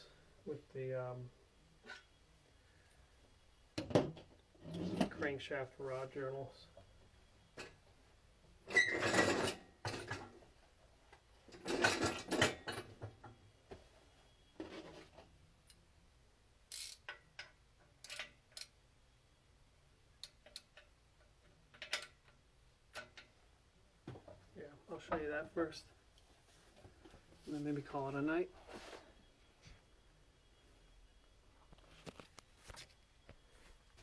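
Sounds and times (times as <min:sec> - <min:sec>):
ratchet wrench clicking: 0:16.7 - 0:17.2, 0:18.0 - 0:18.8.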